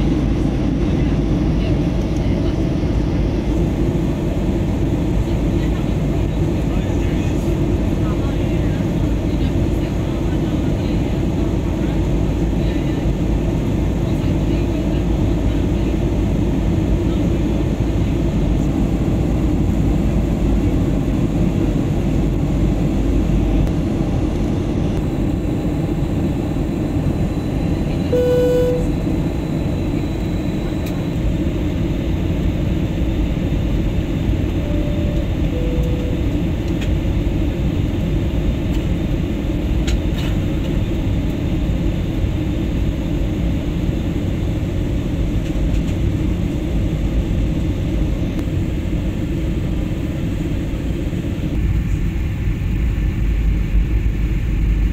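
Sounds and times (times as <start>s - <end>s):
airliner cabin roar: 0.0s - 54.9s
short tones: 28.1s - 28.9s, 34.6s - 36.4s.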